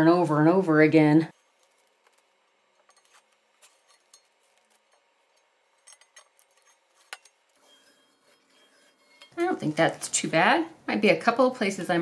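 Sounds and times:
tape crinkling as peeled: 1.3s - 5.7s.

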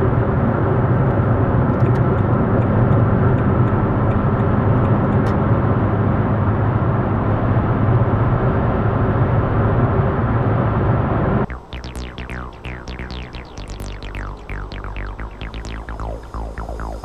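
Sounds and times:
electronic music with falling synth: 11.5s - 17.0s.

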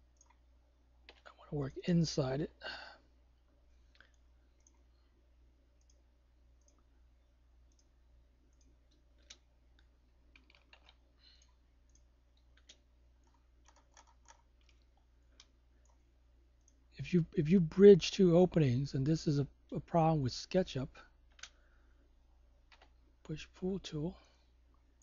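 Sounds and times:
low steady hum: 0.0s - 25.0s
computer mouse clicks: 0.1s - 0.4s, 3.9s - 4.9s, 5.8s - 6.9s, 7.6s - 16.8s, 21.3s - 21.6s, 22.7s - 23.0s.

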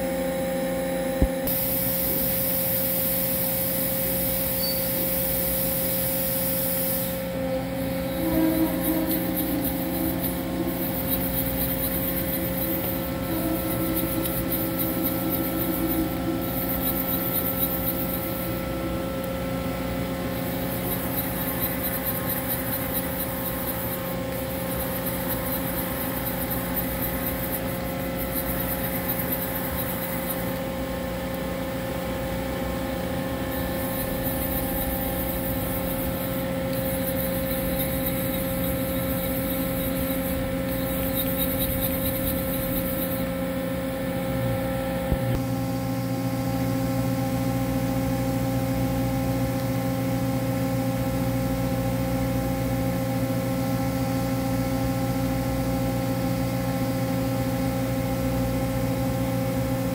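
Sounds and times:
machine hum with steady tones: 0.0s - 59.9s
coolant spray hissing: 1.5s - 18.7s.

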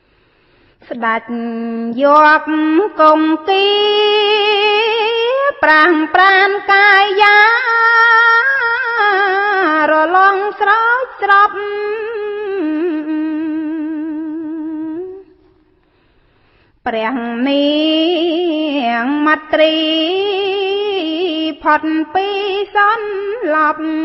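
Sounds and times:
woman breathing: 0.0s - 0.9s, 15.4s - 16.8s.

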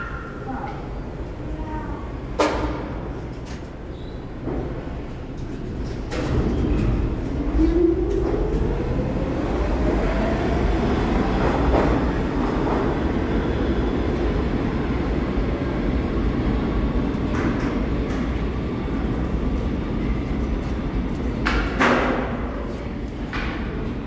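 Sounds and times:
subway train motors whining: 0.0s - 24.0s.

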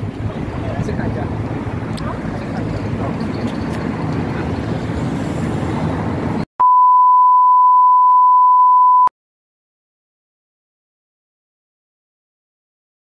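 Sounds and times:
outdoor background noise: 0.0s - 6.5s.

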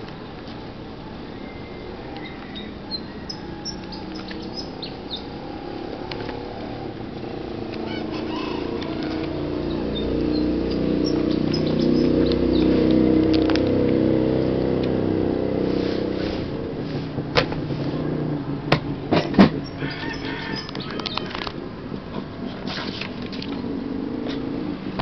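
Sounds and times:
motor engine humming: 0.0s - 25.0s
sharp clicks: 20.6s - 21.6s.

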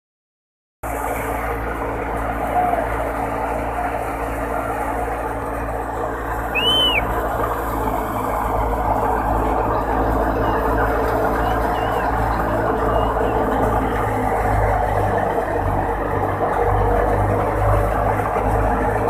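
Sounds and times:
thresher running: 0.9s - 19.0s
short high whistle: 6.5s - 7.1s.

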